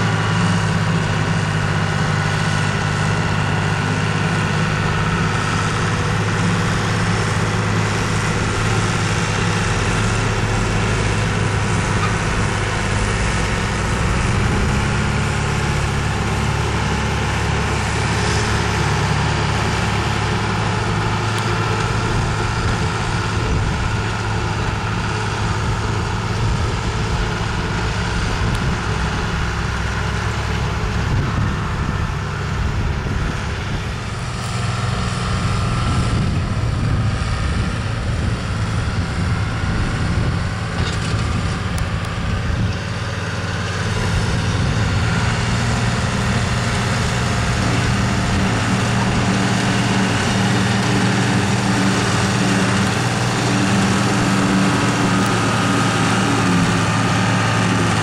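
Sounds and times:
tractor diesel engine running: 0.0s - 58.0s
forage harvester chopping grass: 43.6s - 58.0s.

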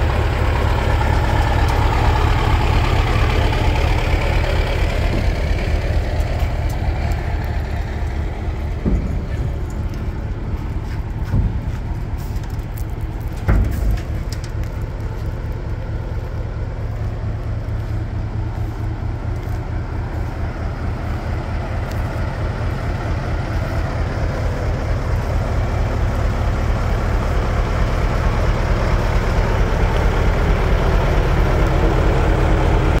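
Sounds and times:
diesel truck engine idling: 0.0s - 33.0s
short clunks: 4.9s - 15.3s.

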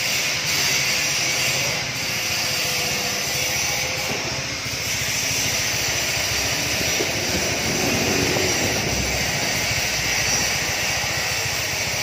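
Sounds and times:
wind buffeting microphone: 5.0s - 11.6s
low rumble: 5.9s - 10.8s.

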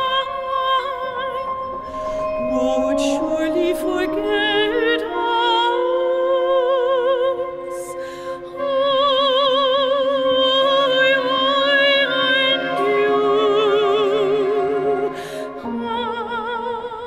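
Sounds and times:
chamber ensemble chords: 0.0s - 16.7s
soprano singing with vibrato: 0.0s - 17.0s.

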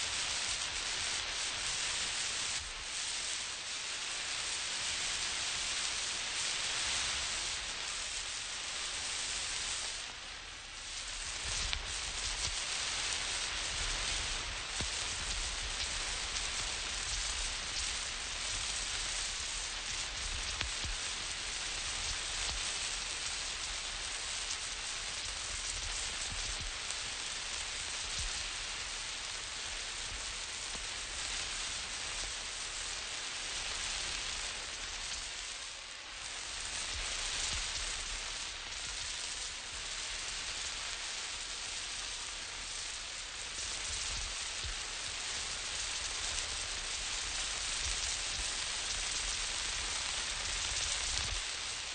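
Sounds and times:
road flare hissing: 6.4s - 35.4s.

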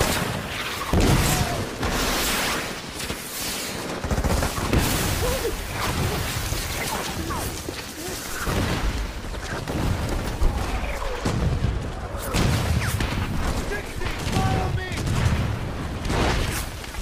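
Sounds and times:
gunfire and machine-gun fire: 3.7s - 7.5s
explosion booms: 8.4s - 16.6s.

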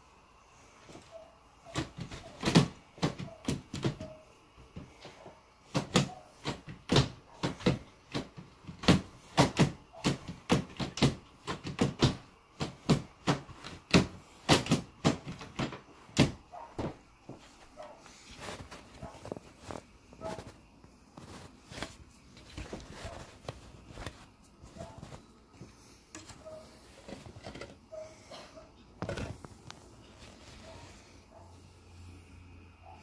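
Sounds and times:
wooden cot frame knocking: 1.7s - 4.2s, 5.7s - 17.0s.

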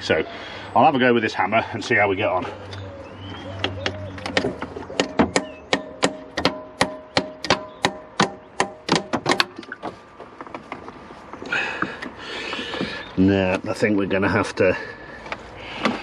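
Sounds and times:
hammer striking metal pump: 5.0s - 9.6s.

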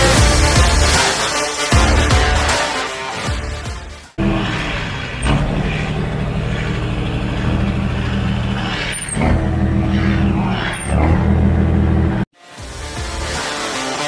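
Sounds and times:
tractor diesel engine running: 4.2s - 12.3s.

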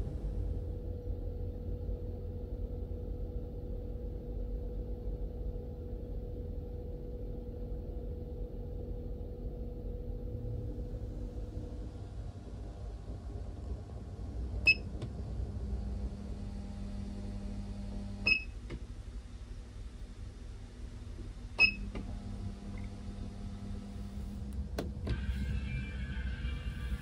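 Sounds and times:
steady low hum: 0.0s - 27.0s
low drone: 25.1s - 27.0s.

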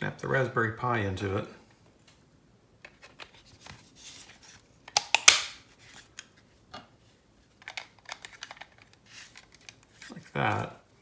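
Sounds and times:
loud plastic snap: 4.9s - 5.6s
plastic pieces clicking and rubbing: 7.6s - 10.7s.

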